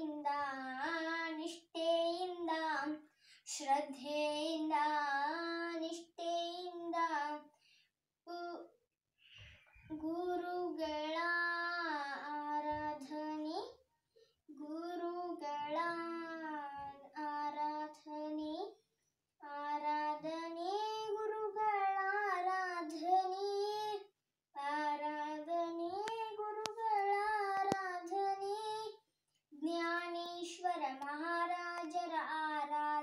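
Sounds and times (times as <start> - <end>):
girl singing unaccompanied: 0.0 - 7.6, 8.3 - 8.7, 9.8 - 13.8, 14.5 - 18.8, 19.4 - 33.0
girl breathing: 3.0 - 3.5, 7.5 - 7.9.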